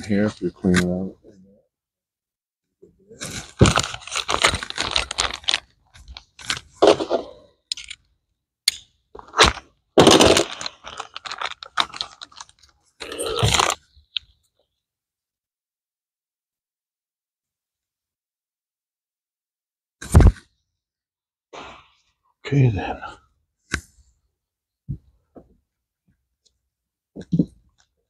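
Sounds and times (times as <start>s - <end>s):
plastic sheeting crinkling: 3.4s - 6.2s, 10.1s - 12.7s.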